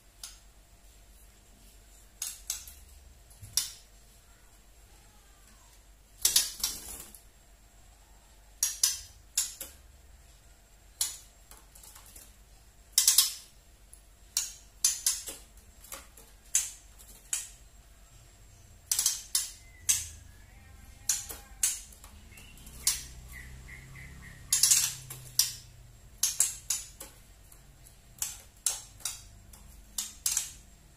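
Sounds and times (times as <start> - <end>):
bird rattling clicks: 24.5 - 27.2, 28.2 - 30.7.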